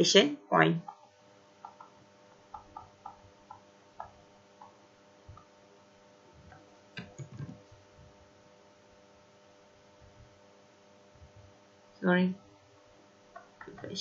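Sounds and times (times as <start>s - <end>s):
low electrical hum: 0.0s - 14.0s
stylus tapping on tablet screen: 0.8s - 5.5s.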